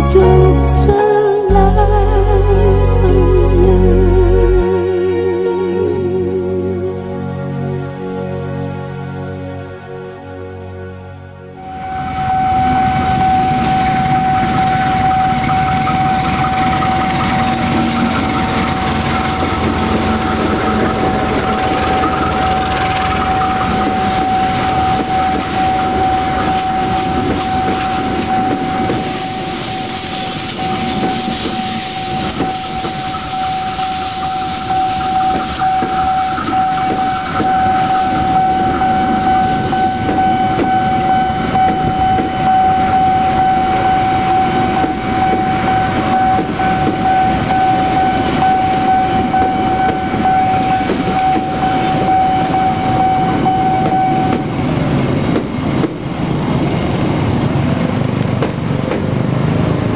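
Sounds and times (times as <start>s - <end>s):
crossing signal warning tone: 11.6s - 57.5s
train wheels clattering on rails: 53.4s - 59.9s
road vehicle engine: 54.5s - 59.9s.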